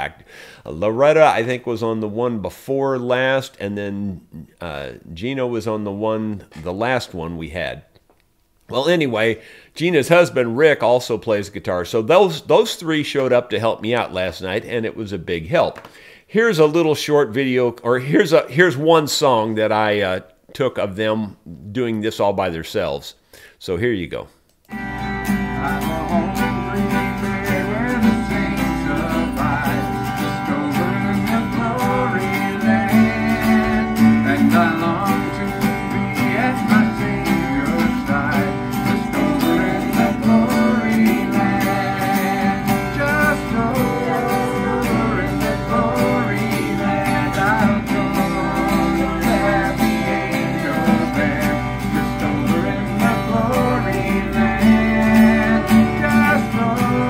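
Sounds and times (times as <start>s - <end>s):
acoustic guitars strumming: 24.7s - 57.0s
man singing: 25.0s - 57.0s.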